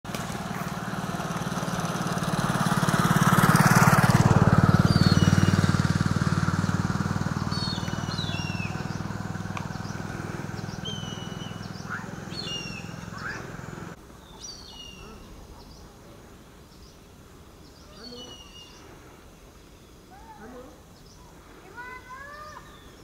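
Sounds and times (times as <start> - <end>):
vehicle engine running: 0.0 - 15.3
high falling bird chirps: 4.7 - 15.9, 16.6 - 23.0.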